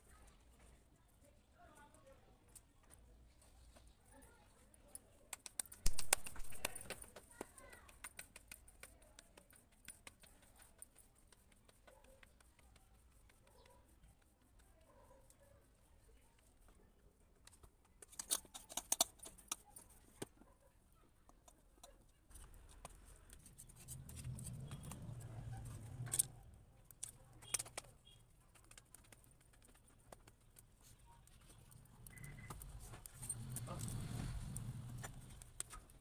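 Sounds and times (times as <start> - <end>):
hands patting dough: 5.1 - 20.4, 21.2 - 36.0
sticks clicking into fire: 5.3 - 10.3.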